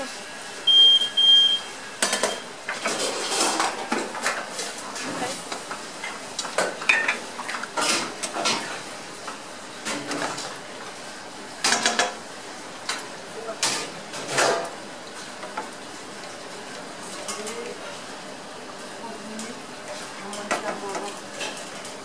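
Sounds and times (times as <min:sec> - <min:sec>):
pans and utensils clattering: 0:02.0 - 0:05.3, 0:06.5 - 0:08.8, 0:13.6 - 0:14.7.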